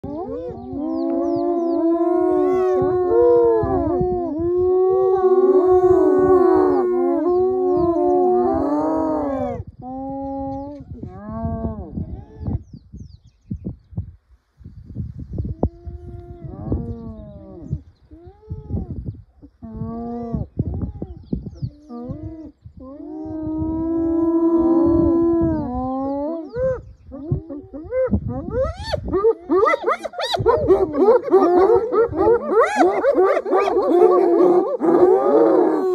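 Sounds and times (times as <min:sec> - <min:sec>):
hyenas calling: 0:23.2 - 0:35.9.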